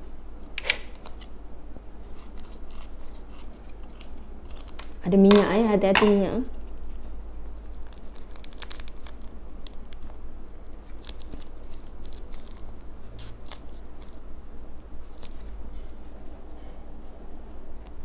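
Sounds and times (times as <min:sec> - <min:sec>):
faint low hum: 0:00.0 - 0:18.0
seasoning sachet crinkling: 0:07.6 - 0:10.0, 0:10.9 - 0:14.2.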